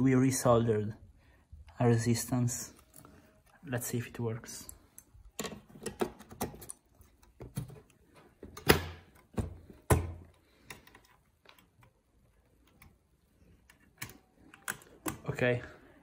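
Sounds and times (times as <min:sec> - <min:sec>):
computer parts clicking and knocking: 0:05.0 - 0:12.0, 0:13.6 - 0:15.6.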